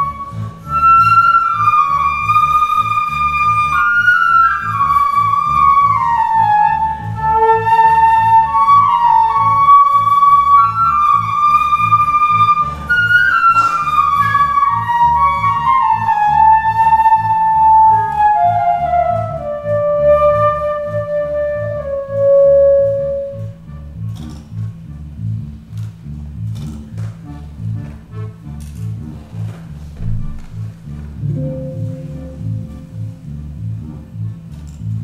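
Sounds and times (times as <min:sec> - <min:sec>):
flute melody: 0:00.0 - 0:24.0, 0:29.4 - 0:34.5
accordion: 0:00.0 - 0:35.0
pulsing electric bass line: 0:29.8 - 0:35.0.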